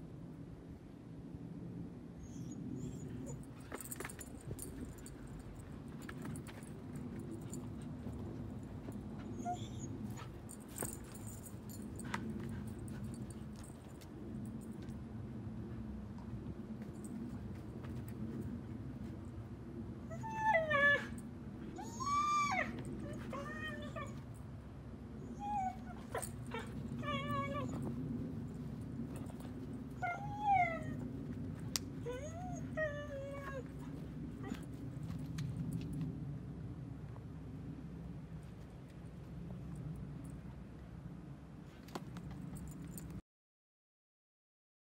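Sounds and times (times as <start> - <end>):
steady low hum: 0.0 - 21.8, 22.6 - 43.1
puppy whining: 2.2 - 3.4, 9.2 - 10.4, 20.1 - 21.2, 21.8 - 24.2, 25.2 - 28.0, 30.0 - 31.1, 32.0 - 34.7
collar tags jingling: 3.2 - 15.0.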